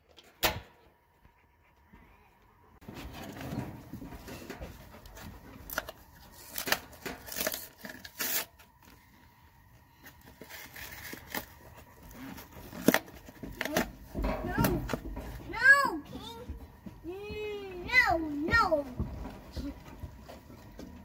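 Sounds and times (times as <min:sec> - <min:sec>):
cardboard box rustling and ripping: 0:05.7 - 0:08.5.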